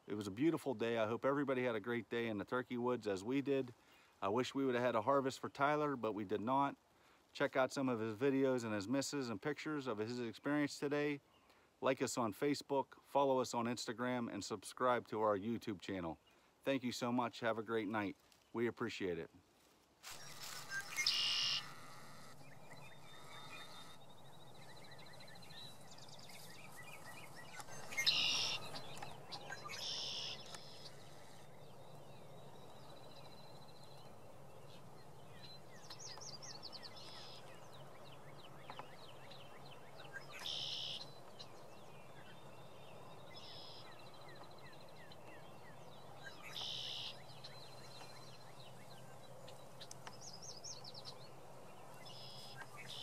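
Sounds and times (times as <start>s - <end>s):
birds chirping and trilling: 20.1s - 53.0s
loud short bird call: 20.2s - 24.0s, 27.8s - 28.8s.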